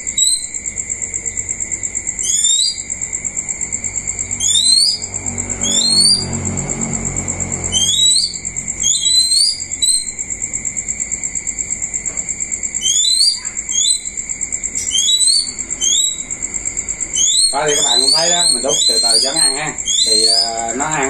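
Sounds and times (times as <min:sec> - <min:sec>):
bird chirping: 0:00.0 - 0:00.6, 0:01.2 - 0:03.1, 0:04.0 - 0:10.2, 0:12.8 - 0:21.0
steady high trill: 0:03.7 - 0:10.2, 0:12.9 - 0:21.0.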